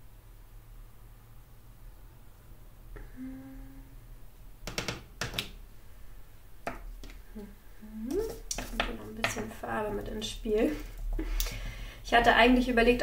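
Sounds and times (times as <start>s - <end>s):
steady hum: 0.0s - 4.6s.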